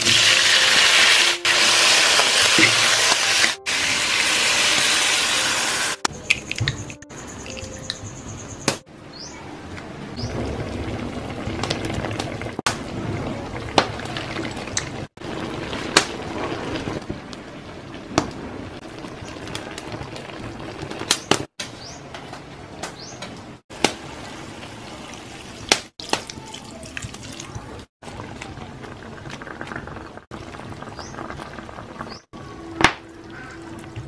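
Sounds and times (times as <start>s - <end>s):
food simmering bubbling hiss: 10.3s - 21.5s, 28.0s - 32.6s.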